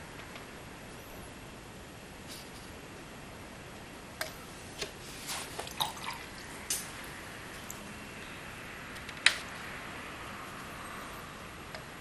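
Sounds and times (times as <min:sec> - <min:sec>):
small watery sounds: 0:04.8 - 0:08.3.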